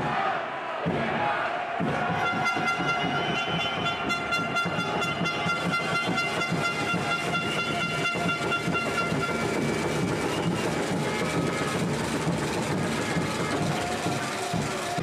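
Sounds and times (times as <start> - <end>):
crowd noise: 0.0 - 15.0
long held horn tone: 2.2 - 9.6.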